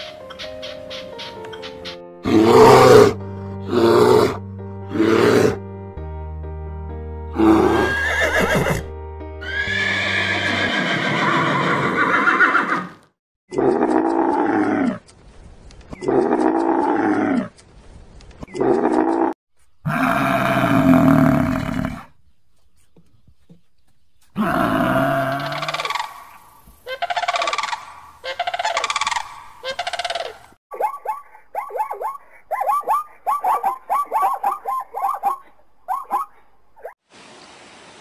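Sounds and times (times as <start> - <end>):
background music: 0.0 - 11.1
horse whinnying: 7.4 - 13.0
cattle lowing and bellowing: 18.6 - 22.1, 24.4 - 25.9.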